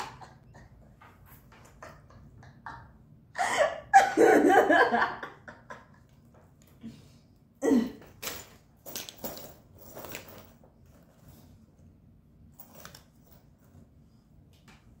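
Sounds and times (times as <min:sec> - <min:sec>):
metal chain clinking: 0:08.1 - 0:11.2, 0:12.5 - 0:13.7.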